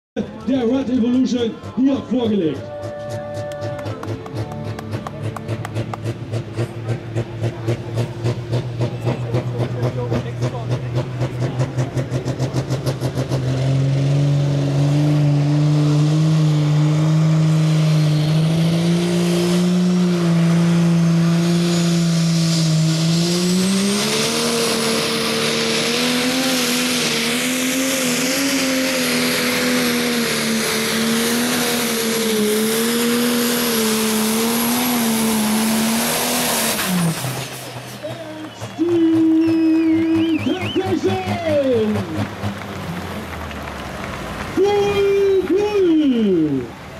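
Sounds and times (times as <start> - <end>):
tractor diesel engine at full power: 0.2 - 46.9
turbo whistle: 38.1 - 41.4.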